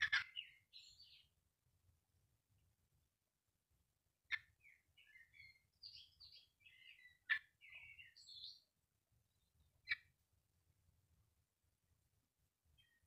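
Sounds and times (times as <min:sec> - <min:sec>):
songbird singing: 0:00.0 - 0:01.7, 0:04.2 - 0:10.3, 0:12.4 - 0:13.0.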